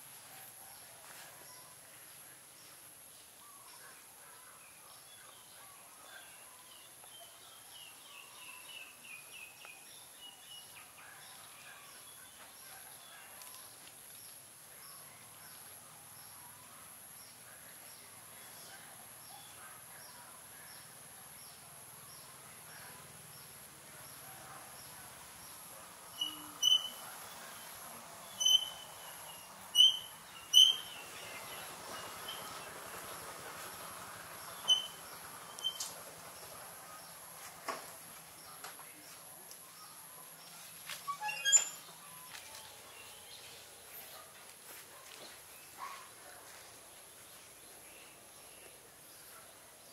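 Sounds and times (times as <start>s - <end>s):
small birds chirping: 1.5s - 37.4s
sharp high-pitched chirps: 26.2s - 27.0s, 28.4s - 29.0s, 29.8s - 30.9s, 34.6s - 35.9s.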